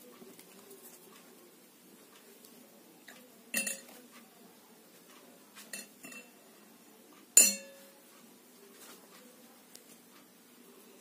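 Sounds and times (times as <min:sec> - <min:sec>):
hard object clinking on a dish: 0:03.5 - 0:04.0, 0:05.6 - 0:06.4, 0:07.4 - 0:08.0.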